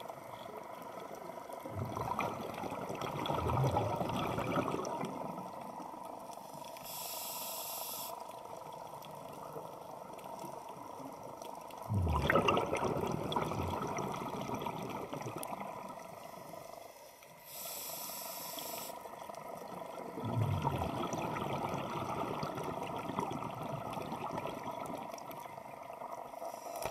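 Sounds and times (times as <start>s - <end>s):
exhaled bubbles gushing: 1.5s - 5.7s, 11.8s - 16.2s, 19.3s - 26.2s
air hissing through regulator: 6.7s - 8.3s, 17.4s - 19.1s, 26.4s - 26.9s.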